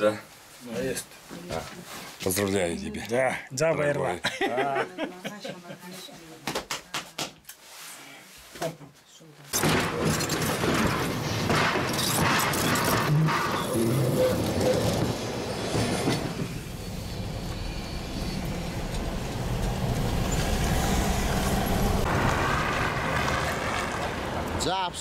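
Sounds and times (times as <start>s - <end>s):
car road noise: 10.2s - 25.0s
tram running on rails: 10.4s - 25.0s.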